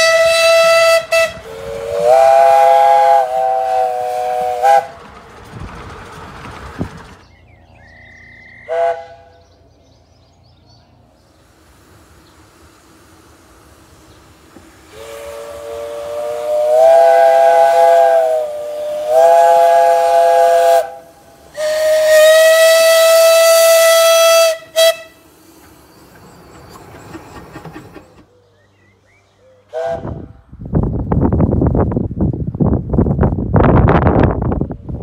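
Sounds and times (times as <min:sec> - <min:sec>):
steam train whistle: 0:00.0 - 0:05.0, 0:08.2 - 0:09.4, 0:14.8 - 0:25.7, 0:29.7 - 0:30.4
wind noise on microphone: 0:00.0 - 0:07.4, 0:29.8 - 0:35.0
steam hiss: 0:11.2 - 0:28.2.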